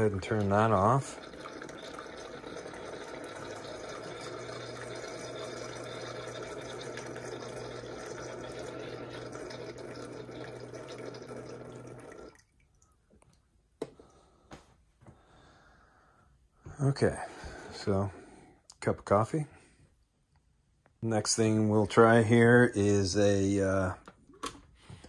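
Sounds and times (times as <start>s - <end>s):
coffee maker pump humming: 0.0s - 12.4s
coffee dripping into mug: 0.0s - 13.0s.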